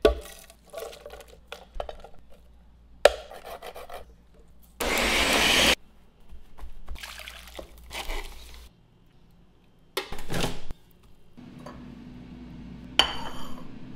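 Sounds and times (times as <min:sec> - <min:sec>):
blender running: 0:04.8 - 0:05.8.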